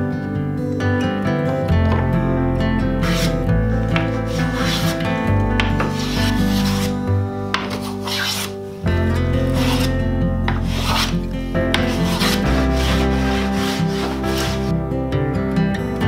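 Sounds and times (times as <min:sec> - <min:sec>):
background music: 0:00.0 - 0:16.0
hand plane shaving wood: 0:03.0 - 0:08.6, 0:09.3 - 0:14.8.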